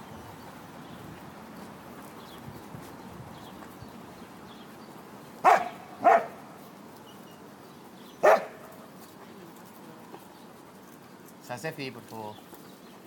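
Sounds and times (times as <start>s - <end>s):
dog barking: 5.4s - 6.4s, 8.2s - 8.7s.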